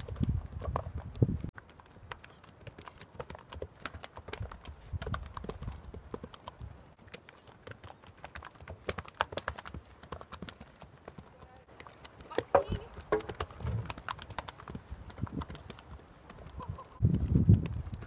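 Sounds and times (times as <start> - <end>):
horse hoofbeats on turf and dirt: 0.0 - 18.0.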